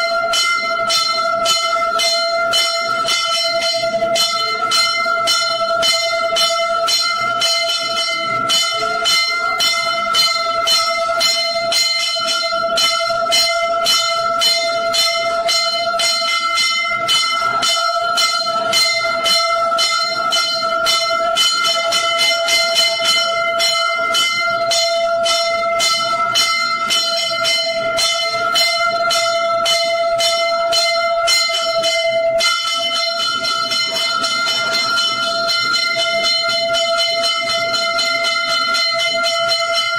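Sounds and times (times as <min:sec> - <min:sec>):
temple bells ringing: 0:00.0 - 0:39.9.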